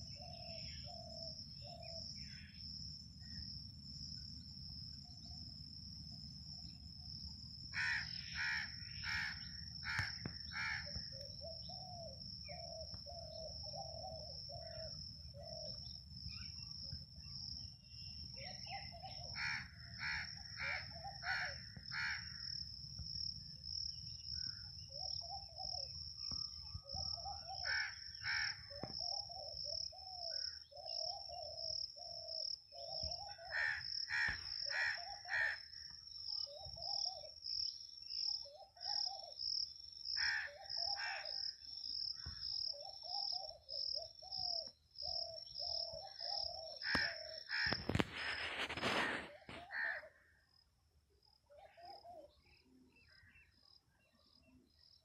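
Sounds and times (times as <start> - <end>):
cricket trilling: 0.0 - 55.0
crows cawing: 7.8 - 11.1, 19.4 - 22.4, 27.6 - 28.8, 33.5 - 35.8, 40.2 - 41.4, 46.8 - 47.9, 48.8 - 50.3.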